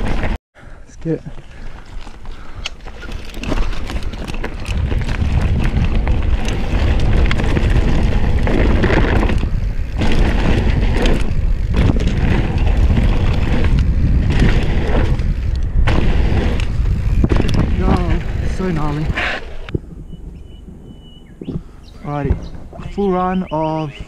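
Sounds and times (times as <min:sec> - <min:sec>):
bike knocking and rattling: 0:00.0 - 0:00.4, 0:01.3 - 0:20.1
bike tyres on dirt trail: 0:00.0 - 0:24.0
wind buffeting microphone: 0:02.3 - 0:24.0.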